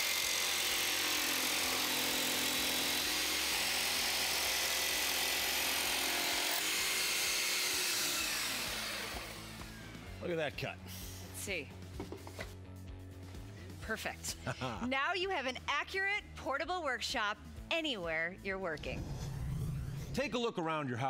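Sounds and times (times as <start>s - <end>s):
jigsaw cutting wooden board: 0.0s - 10.2s
shop vacuum running: 0.0s - 10.2s.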